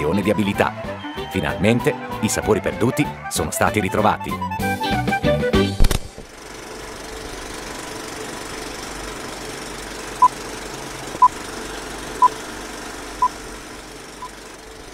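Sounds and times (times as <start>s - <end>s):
steady mechanical rattle: 6.1s - 14.9s.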